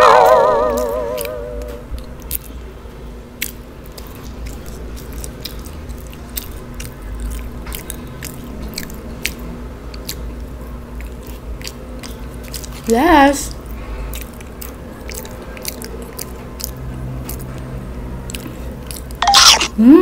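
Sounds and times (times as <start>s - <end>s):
chewing with mouth clicks: 0.2s - 19.8s.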